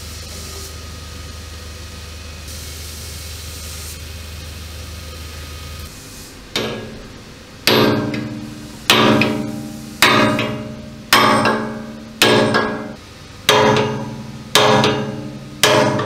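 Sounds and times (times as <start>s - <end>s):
steady low hum: 0.0s - 16.0s
hammer striking steel chisel: 6.6s - 7.1s, 7.7s - 16.0s.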